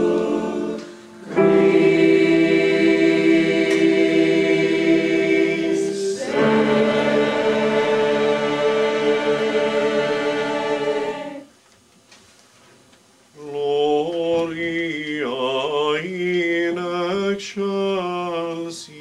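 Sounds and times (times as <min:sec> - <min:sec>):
mixed choir singing: 0:00.0 - 0:11.5.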